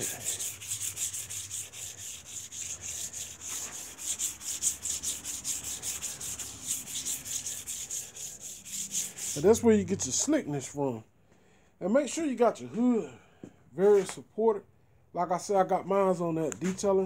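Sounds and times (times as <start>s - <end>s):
wet sanding by hand: 0.0s - 10.2s.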